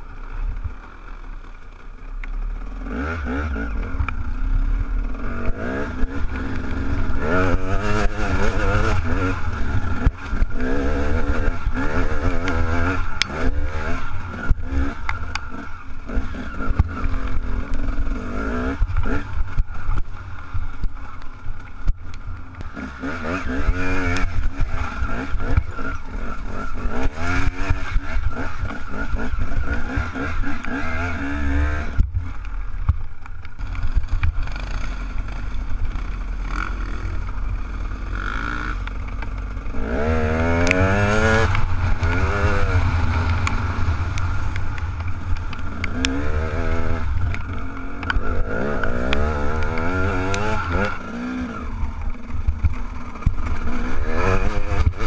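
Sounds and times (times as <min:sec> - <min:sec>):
dirt bike engine revving: 0:02.4 - 0:55.0.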